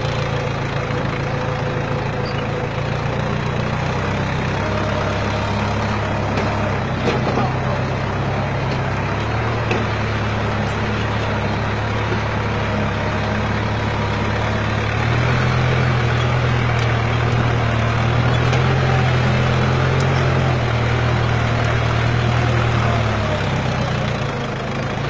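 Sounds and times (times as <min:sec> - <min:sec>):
tractor engine running under load: 0:00.0 - 0:25.0.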